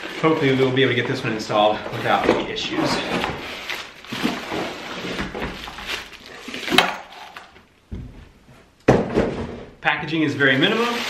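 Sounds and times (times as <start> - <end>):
cardboard and plastic rustling: 0.0 - 7.7, 10.4 - 11.0.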